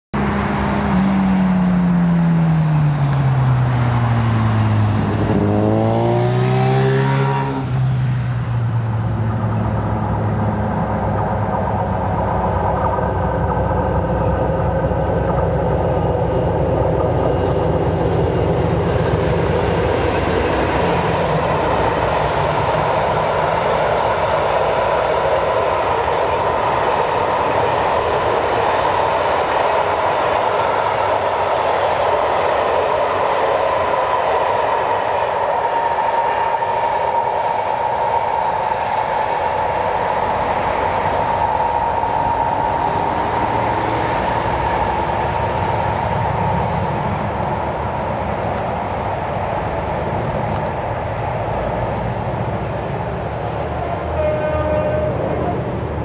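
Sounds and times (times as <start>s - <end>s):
diesel locomotive engine: 0.1s - 56.0s
wagons rumbling and clattering: 8.7s - 23.0s.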